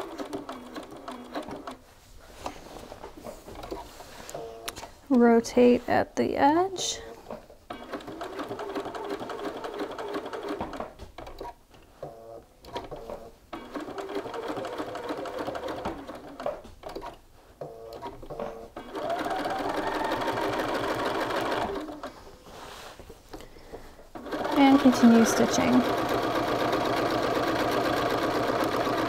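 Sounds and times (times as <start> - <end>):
sewing machine stitching: 0.0 - 1.8, 7.7 - 22.2, 24.1 - 29.0.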